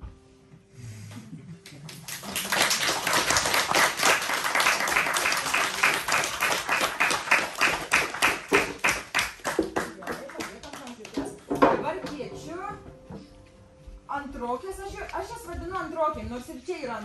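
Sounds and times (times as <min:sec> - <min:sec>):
audience applauding: 0:01.6 - 0:11.4.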